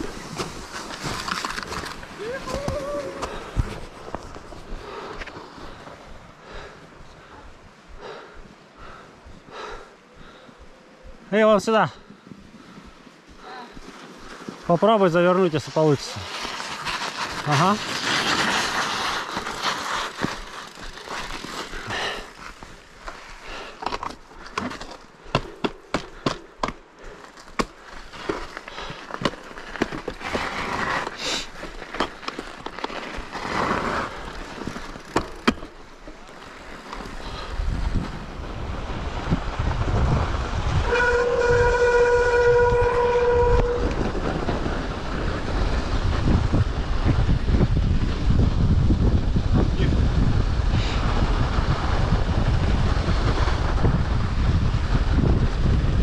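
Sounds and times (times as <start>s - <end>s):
bike rattling and clicking: 16.2s - 38.0s
wind rushing over microphone: 37.2s - 56.0s.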